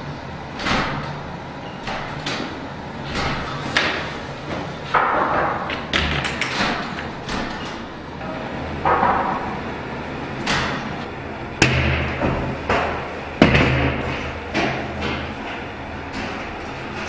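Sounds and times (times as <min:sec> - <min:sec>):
low steady hum: 0:00.0 - 0:17.0
stall door knocks and clicks: 0:00.6 - 0:01.2, 0:01.8 - 0:08.0.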